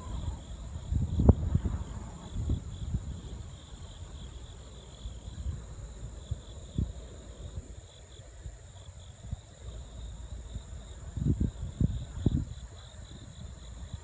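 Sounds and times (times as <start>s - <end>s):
insects trilling: 0.0s - 14.0s
wind buffeting microphone: 0.0s - 14.0s.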